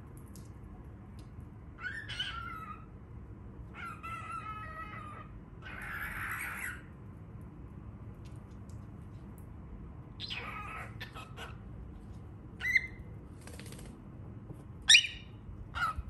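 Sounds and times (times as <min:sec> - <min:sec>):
cockatiel calling: 0:01.8 - 0:02.9, 0:03.7 - 0:06.9, 0:10.2 - 0:11.6, 0:12.6 - 0:13.0, 0:14.9 - 0:16.0.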